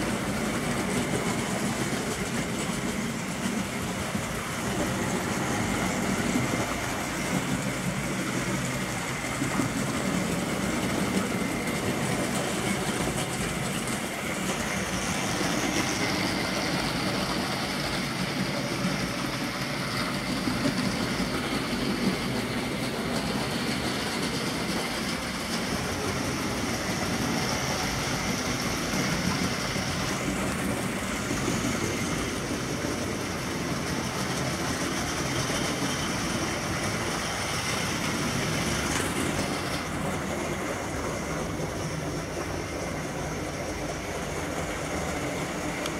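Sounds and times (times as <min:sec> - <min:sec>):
model train running on rails: 0:00.0 - 0:45.9.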